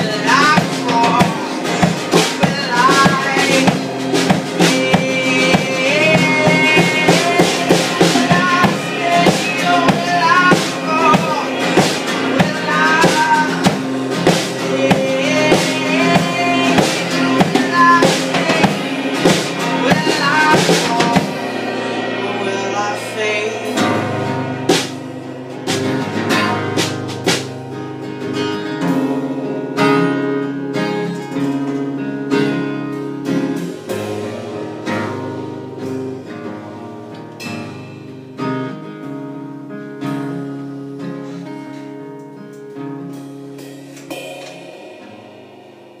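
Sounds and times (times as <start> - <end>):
acoustic guitar strumming: 0.0 - 46.0
cymbal and drum hits: 0.2 - 27.9, 43.6 - 46.0.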